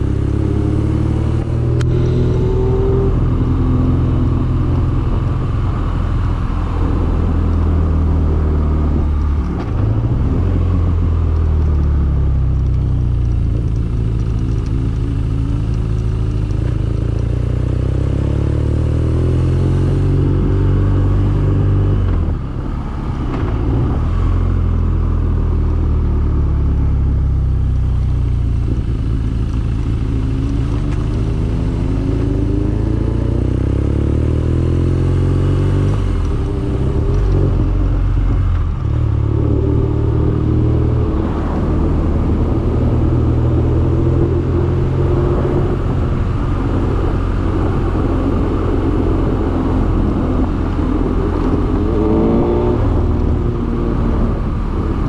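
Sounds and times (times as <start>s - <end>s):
motorcycle engine running: 0.0s - 18.5s, 24.2s - 34.0s.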